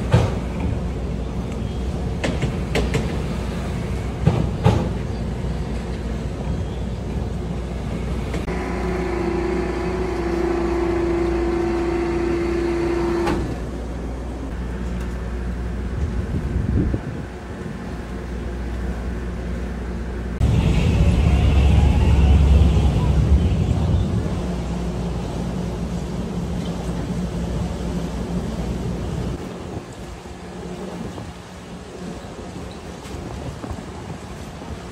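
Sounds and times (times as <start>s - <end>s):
ferry engines rumbling: 0.0s - 34.9s
steady pitched tone: 20.4s - 24.8s.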